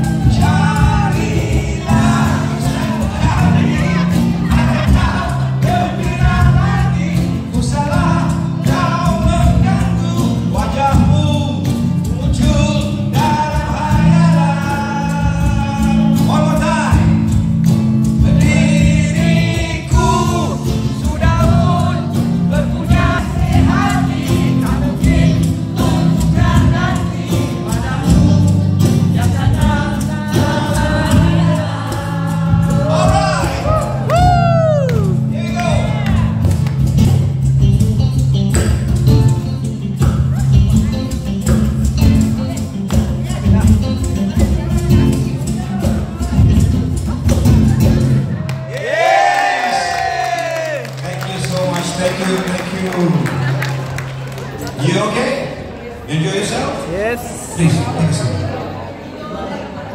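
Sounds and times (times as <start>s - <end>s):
person singing: 0.0s - 17.3s
band playing: 0.0s - 58.8s.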